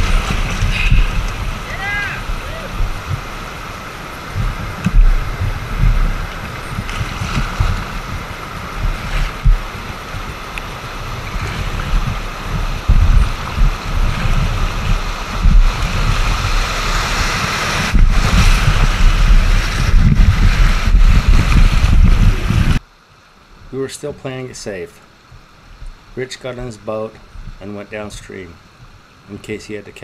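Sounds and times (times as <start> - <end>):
wind buffeting microphone: 0.0 - 22.8, 27.2 - 27.6
rushing whitewater: 0.0 - 30.0.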